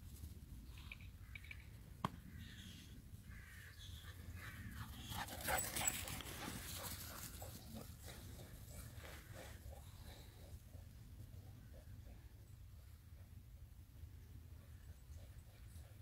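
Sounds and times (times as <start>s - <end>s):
dogs running on grass: 5.0s - 9.4s.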